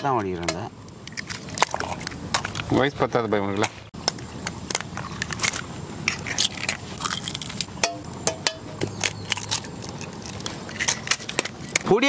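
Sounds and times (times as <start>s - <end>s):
eggshells cracking: 4.1s - 11.9s.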